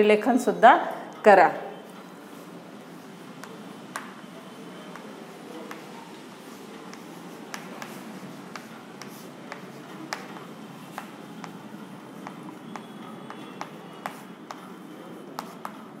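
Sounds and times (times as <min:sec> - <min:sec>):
chalk writing on blackboard: 0:02.3 - 0:16.0.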